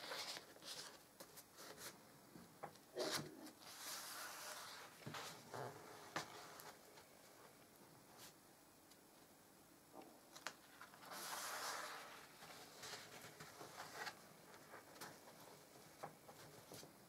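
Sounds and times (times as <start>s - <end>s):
album page swishing over: 3.0s - 6.8s, 10.4s - 15.2s
hands tapping and rustling: 12.4s - 17.0s.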